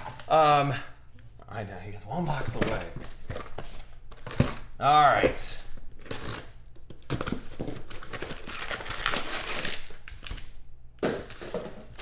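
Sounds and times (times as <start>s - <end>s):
plastic wrapping crinkling: 5.9s - 10.6s.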